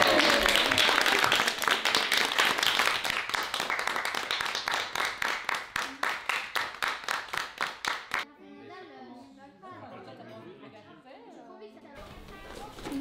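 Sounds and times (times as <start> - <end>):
people cheering: 0.0 - 2.9
people clapping: 0.0 - 8.3.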